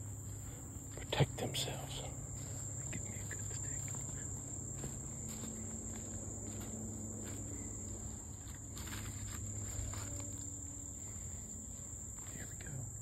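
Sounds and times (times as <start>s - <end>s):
high-pitched insect chorus: 0.0s - 13.0s
footsteps rustling through grass: 2.2s - 12.5s.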